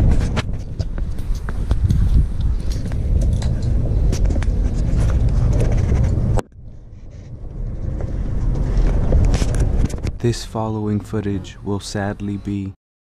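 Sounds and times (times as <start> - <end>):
scuffing footsteps: 0.0 - 6.0
steady low rumble: 0.0 - 12.8.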